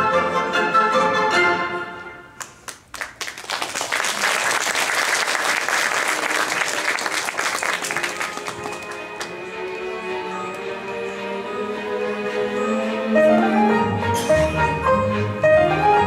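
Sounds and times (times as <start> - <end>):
audience applauding: 2.4 - 9.9
orchestral music: 6.0 - 16.0.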